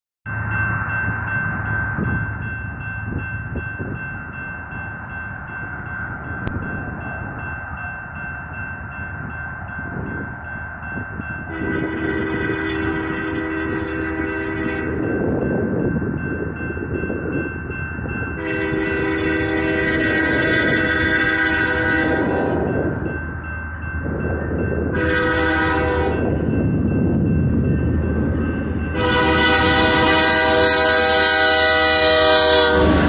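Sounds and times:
freight train rumble: 0.3s - 33.0s
train air horn: 11.5s - 15.0s, 18.4s - 22.6s, 25.0s - 26.3s, 28.9s - 33.0s.

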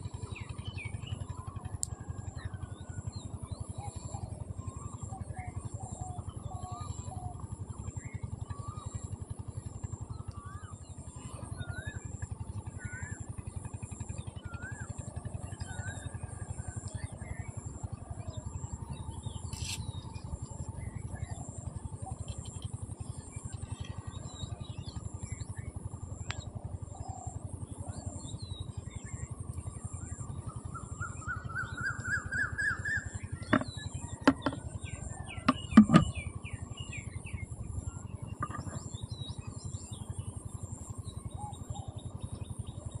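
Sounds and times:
birds chirping: 18.5s - 25.4s, 30.5s - 41.9s
sharp knocks: 33.5s - 34.6s, 35.5s - 36.1s.

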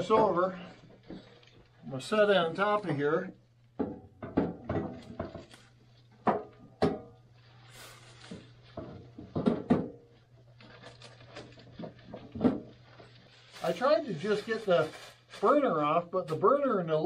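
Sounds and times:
plastic wrapping crinkling: 0.0s - 1.9s, 5.0s - 6.2s, 7.3s - 9.3s, 10.1s - 16.0s
metal griddle knocking: 3.8s - 5.5s, 8.8s - 10.1s.

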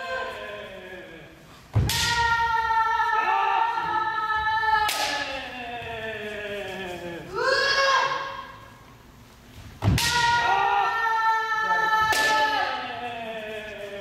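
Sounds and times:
people yelling: 0.0s - 8.7s, 9.9s - 14.0s
bamboo sword strike crack: 9.8s - 10.4s.

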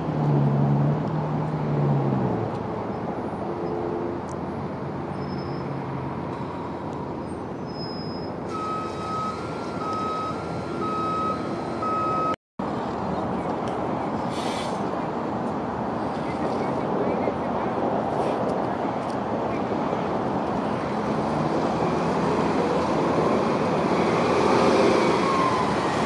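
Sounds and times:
bus engines and traffic: 0.0s - 26.0s
vehicle warning beeps: 7.7s - 12.4s
air hiss: 14.3s - 14.9s.

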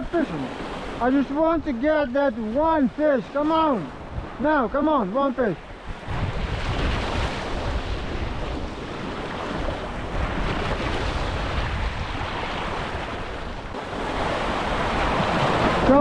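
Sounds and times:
wind on microphone: 0.0s - 4.8s, 5.6s - 16.0s
sea waves washing ashore: 0.0s - 16.0s.

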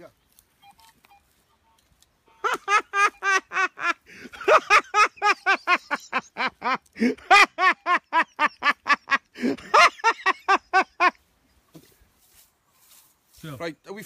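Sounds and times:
man laughing in high cackle: 2.4s - 11.2s.

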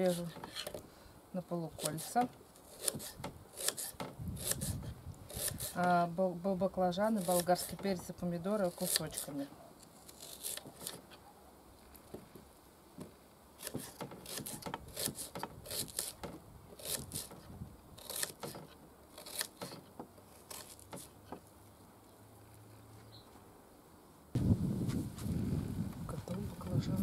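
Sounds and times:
knife slicing onion: 7.1s - 7.8s, 13.6s - 16.2s, 16.8s - 17.3s.

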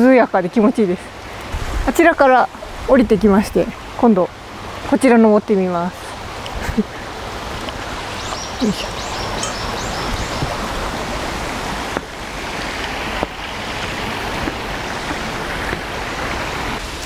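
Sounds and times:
stream running over rocks: 0.0s - 17.0s.

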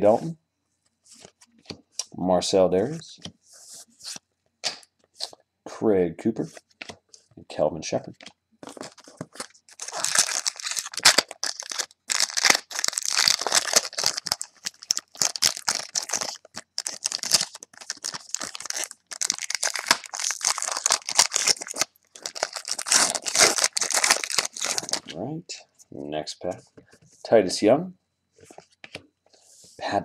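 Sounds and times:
foil wrapper crinkling and tearing: 8.6s - 25.1s.

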